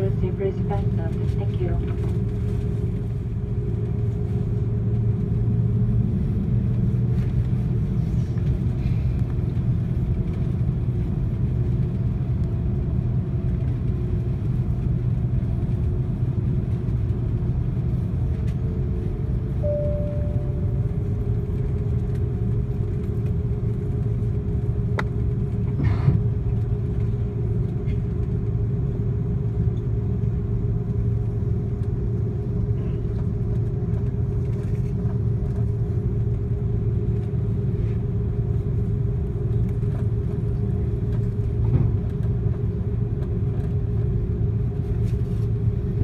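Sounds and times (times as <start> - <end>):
aircraft engines rumbling: 0.0 - 46.0
faint tone: 19.6 - 21.4.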